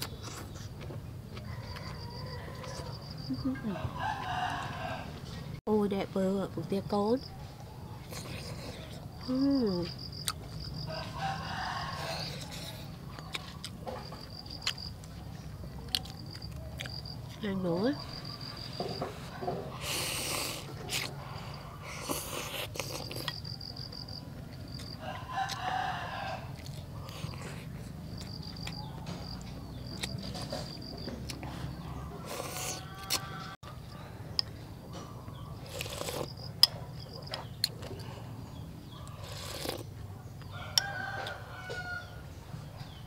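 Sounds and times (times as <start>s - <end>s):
rooster crowing: 1.4s - 5.4s, 10.8s - 13.0s, 24.8s - 27.4s, 28.4s - 34.0s, 40.4s - 42.4s
slurping noodle soup: 19.2s - 23.4s, 32.2s - 33.3s, 35.6s - 36.4s, 39.1s - 39.9s.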